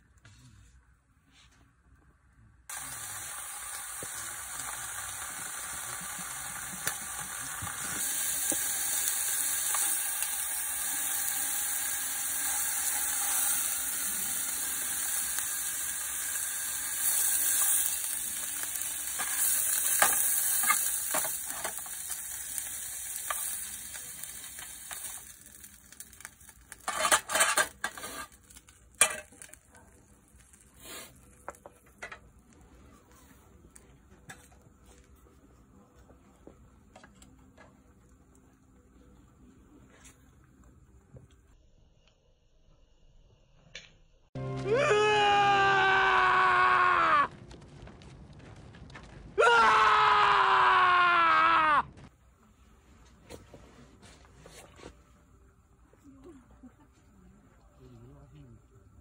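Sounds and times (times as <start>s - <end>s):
food sizzling in a frying pan: 2.7s - 32.4s.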